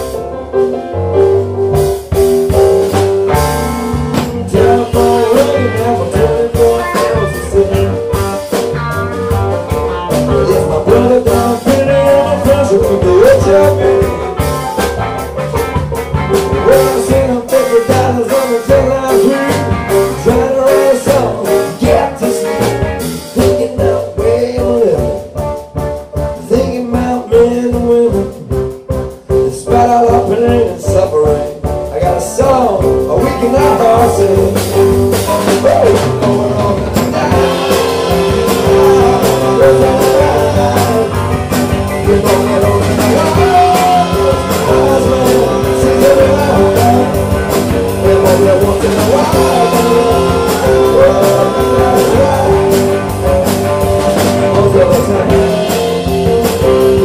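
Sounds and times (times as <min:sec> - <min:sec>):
live band playing: 0:00.0 - 0:57.0.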